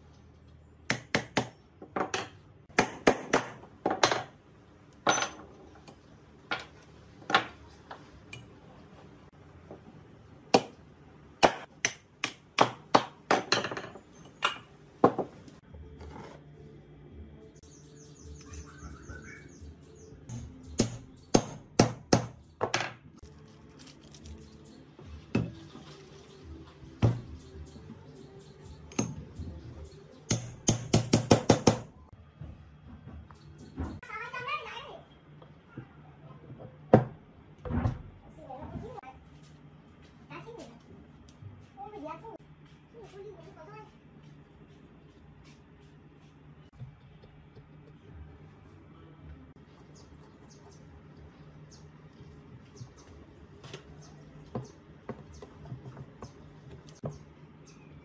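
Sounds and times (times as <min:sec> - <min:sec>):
hammer tapping on steel: 0:30.3 - 0:31.9.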